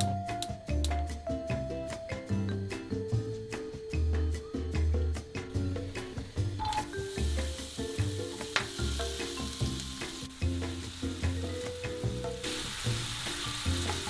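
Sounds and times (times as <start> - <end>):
background music with bass: 0.0 - 14.0
onion sizzling in oil: 5.6 - 14.0.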